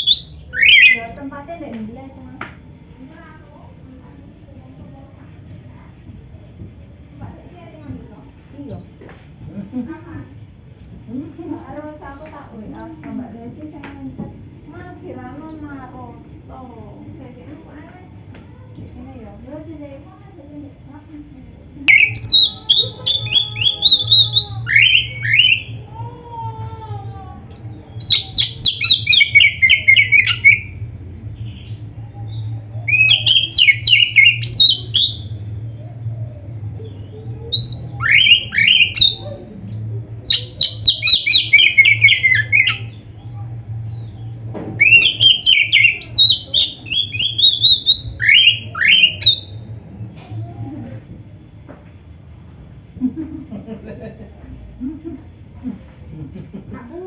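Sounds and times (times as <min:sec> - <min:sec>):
songbird singing whistled phrases: 0:00.0 - 0:01.2, 0:21.8 - 0:25.9, 0:27.5 - 0:50.6
steady low hum: 0:00.0 - 0:57.0.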